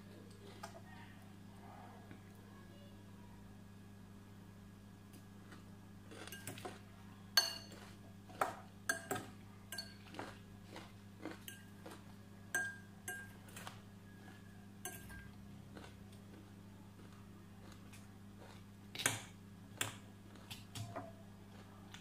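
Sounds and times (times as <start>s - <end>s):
low steady hum: 0.0s - 22.0s
fork clinking on glass bowl: 7.4s - 7.8s, 12.5s - 13.4s, 14.8s - 15.3s.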